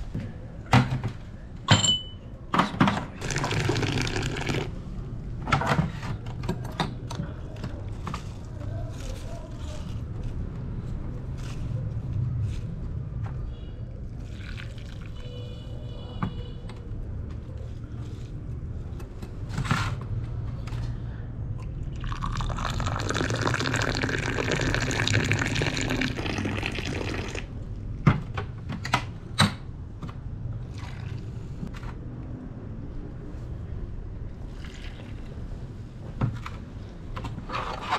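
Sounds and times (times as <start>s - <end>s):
glass clinks: 1.7s - 2.2s
tea pouring into glass: 3.2s - 4.8s, 14.2s - 15.2s, 21.9s - 27.5s, 34.6s - 35.3s.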